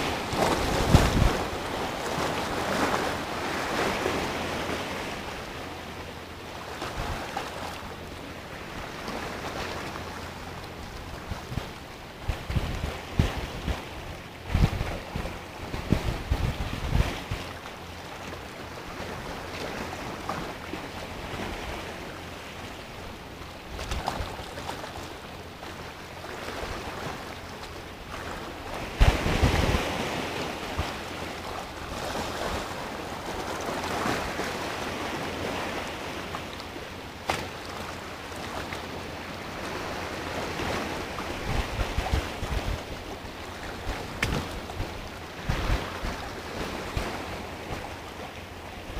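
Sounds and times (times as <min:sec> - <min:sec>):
wind buffeting microphone: 0:00.0 - 0:03.2, 0:10.8 - 0:17.6, 0:28.7 - 0:34.4, 0:39.9 - 0:47.9
sea waves breaking on rock: 0:00.0 - 0:48.9.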